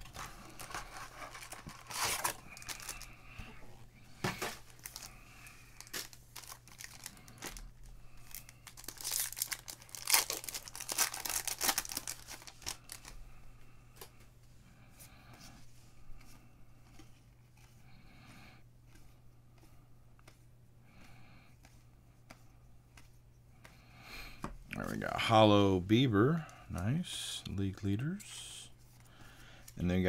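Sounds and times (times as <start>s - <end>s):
foil wrappers ripping and crinkling: 0.2s - 3.1s, 4.6s - 5.2s, 5.8s - 13.1s.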